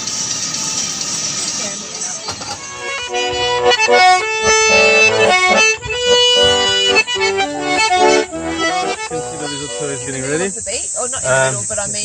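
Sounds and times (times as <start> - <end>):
button accordion playing: 2.5 - 10.6.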